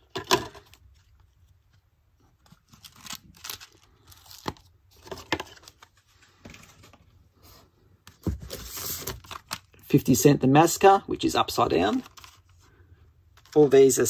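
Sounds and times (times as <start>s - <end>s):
plastic cases clicking and rustling: 0.0s - 0.8s, 4.3s - 5.9s.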